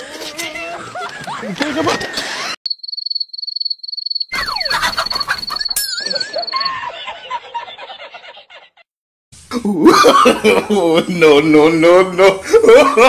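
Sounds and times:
crickets chirping: 2.7s - 6.7s.

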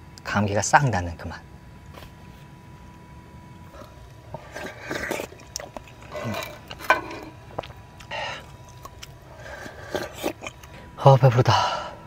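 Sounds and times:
person slurping soup: 3.8s - 7.4s, 9.3s - 10.7s
person breathing: 8.1s - 8.5s, 9.3s - 12.0s.

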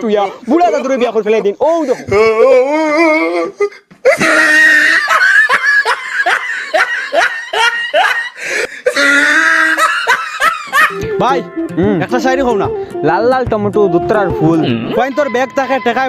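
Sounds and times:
man's wavering voice: 0.0s - 3.8s, 10.9s - 16.0s
laughter sound effect: 4.2s - 8.4s, 9.0s - 11.0s.

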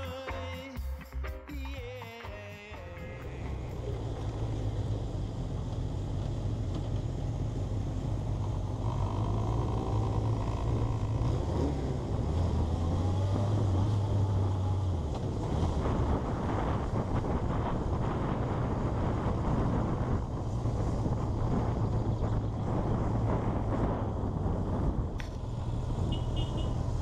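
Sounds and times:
motorcycle engine running: 3.0s - 27.0s
wind rushing past microphone: 9.6s - 26.2s.

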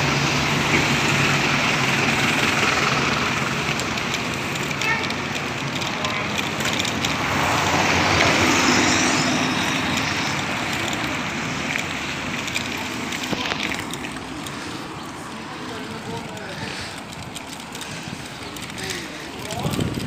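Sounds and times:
street traffic noise: 0.0s - 20.0s
vehicle passing close by: 5.9s - 20.0s.

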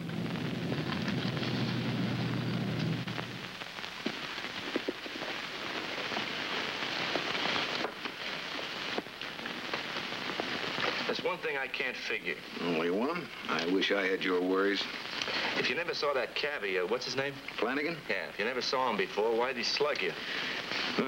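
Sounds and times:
low steady hum: 0.0s - 13.9s
clothes rustling: 4.0s - 11.2s.

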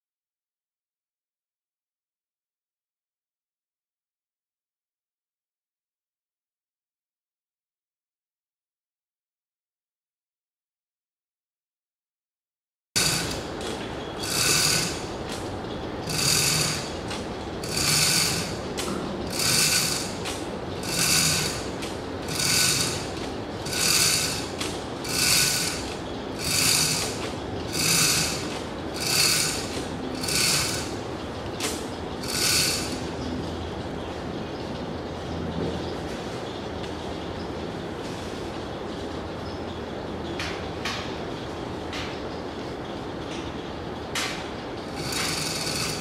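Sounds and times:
pulley and winch squeaking: 13.0s - 33.4s, 44.8s - 46.0s.

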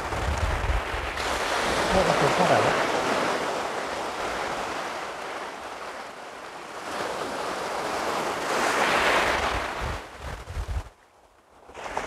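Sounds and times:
sea waves breaking on sand: 0.0s - 12.0s.

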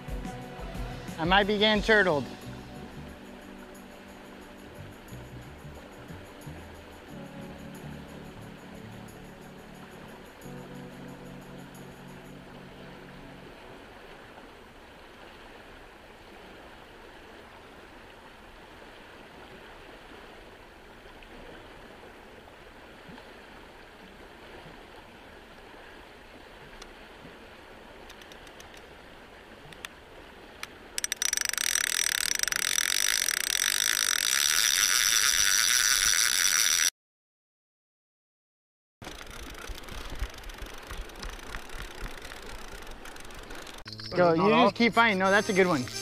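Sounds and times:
faint outdoor hiss: 0.0s - 36.9s, 39.0s - 46.0s
light clicks: 28.1s - 28.9s
fishing reel whirring: 31.0s - 36.9s, 39.0s - 44.0s.

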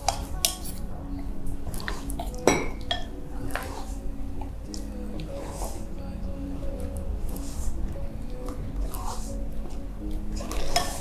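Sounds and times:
spoon clinking on bowls: 1.8s - 3.8s.

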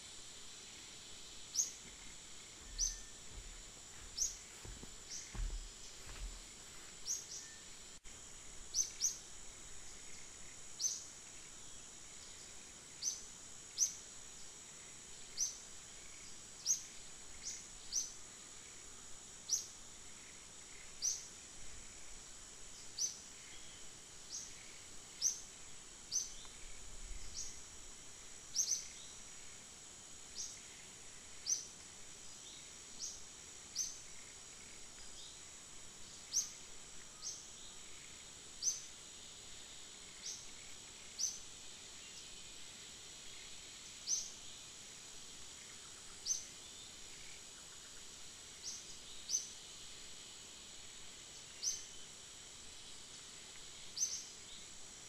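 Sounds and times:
high insect drone: 0.0s - 55.0s
bird chirping: 1.5s - 6.3s.

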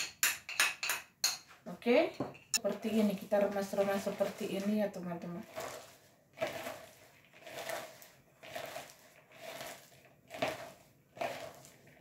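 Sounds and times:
vegetables rustling in hands: 2.9s - 12.0s.

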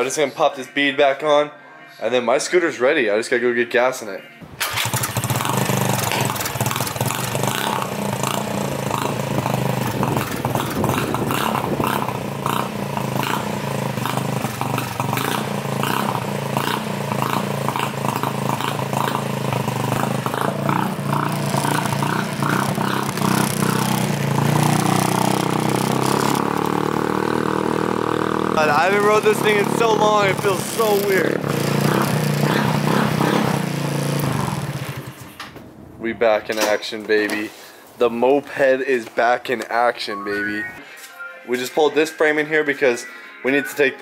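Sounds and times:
scooter engine running: 4.6s - 35.4s.

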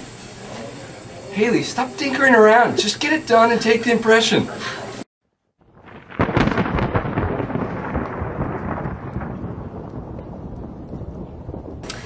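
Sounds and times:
thunderclap with rumble: 5.6s - 12.0s.

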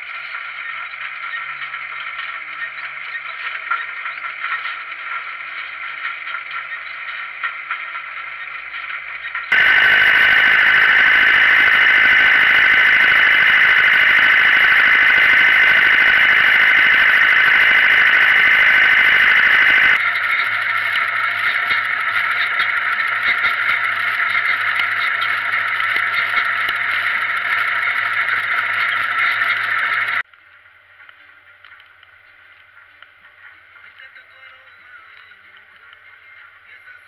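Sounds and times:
tractor engine high-pitched whine: 9.5s - 30.2s
tractor low hum: 9.5s - 30.2s.

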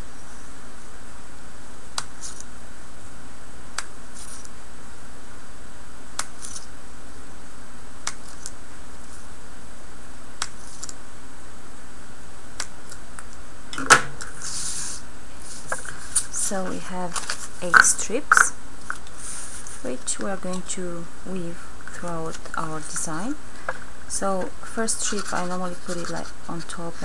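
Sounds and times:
steady hiss: 0.0s - 27.0s
paper rustling: 4.2s - 4.5s, 14.0s - 19.9s.

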